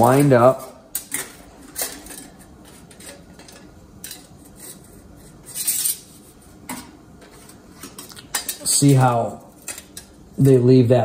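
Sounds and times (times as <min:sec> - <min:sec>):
metallic clatter: 0:00.0 - 0:06.1.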